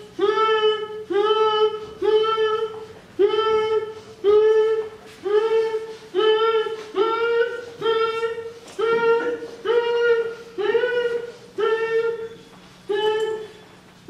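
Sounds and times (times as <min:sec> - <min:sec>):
person high-pitched vocal call: 0:00.0 - 0:13.6.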